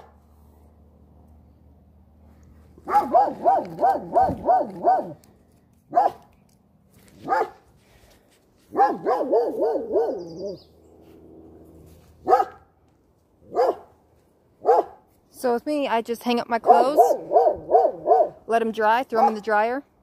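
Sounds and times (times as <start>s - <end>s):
dog barking: 2.8s - 5.2s, 5.9s - 6.3s, 7.2s - 7.6s, 8.7s - 10.6s, 12.2s - 12.7s, 13.5s - 14.0s, 14.6s - 15.0s, 16.7s - 18.4s, 19.2s - 19.4s.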